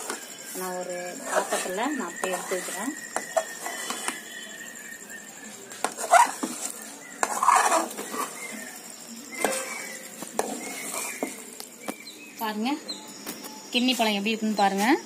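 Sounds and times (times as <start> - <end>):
ladle scraping metal pan: 1.0 - 4.5, 5.8 - 11.4.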